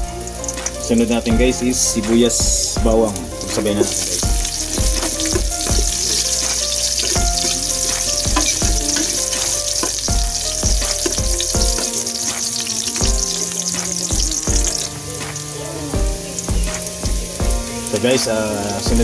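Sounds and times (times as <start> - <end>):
vegetables sizzling in hot oil: 2.6 - 19.0
metal spoon scraping a pot: 3.5 - 14.9.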